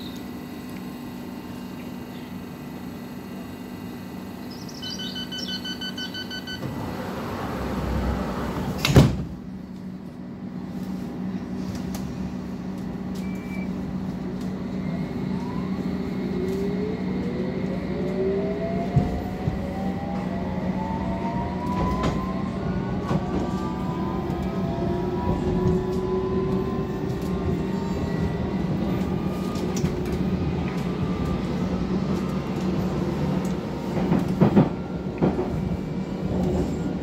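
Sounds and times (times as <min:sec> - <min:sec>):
door-warning beeps: 0:04.8 - 0:06.8, 0:13.2 - 0:13.8
train doors shutting with a knock: 0:05.2 - 0:09.5, 0:18.8 - 0:20.3, 0:21.6 - 0:22.4, 0:33.5 - 0:36.9.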